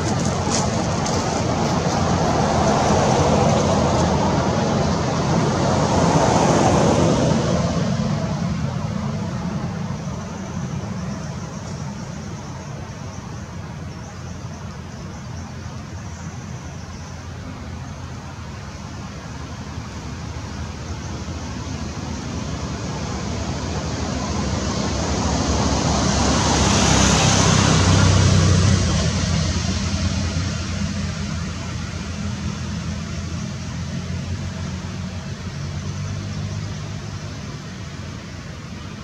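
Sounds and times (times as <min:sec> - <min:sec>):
vehicle passing: 0:00.0 - 0:11.6, 0:19.9 - 0:39.0
road traffic rush: 0:00.0 - 0:39.0.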